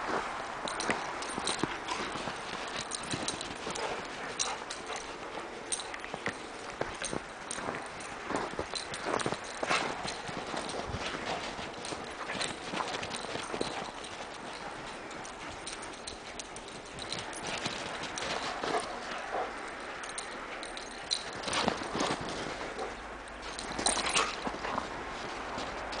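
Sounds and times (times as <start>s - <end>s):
footsteps crunching in snow: 0.0s - 19.8s, 21.2s - 26.0s.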